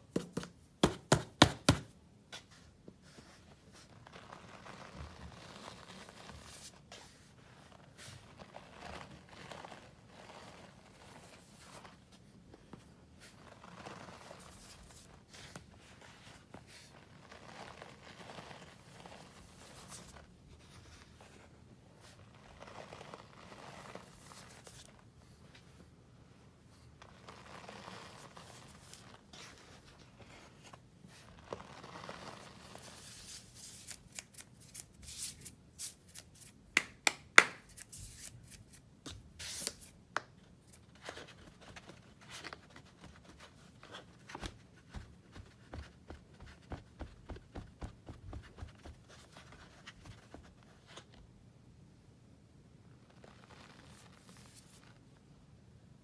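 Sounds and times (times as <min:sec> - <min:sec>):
hands crumbling powder in plastic tub: 0:03.7 - 0:12.0, 0:13.2 - 0:15.4, 0:16.6 - 0:20.2.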